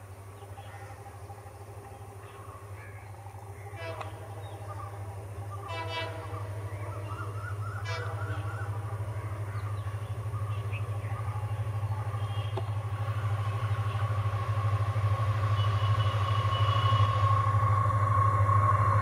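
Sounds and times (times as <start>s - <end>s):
diesel locomotive engine rumble: 0.0s - 19.0s
train horn toot: 3.6s - 9.1s, 12.2s - 17.8s.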